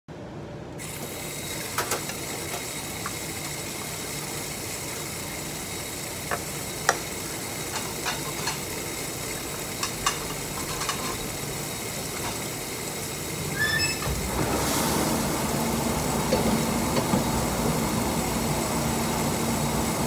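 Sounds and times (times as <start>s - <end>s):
tap water running into sink: 1.1s - 20.0s
dishes clinking: 9.8s - 11.3s.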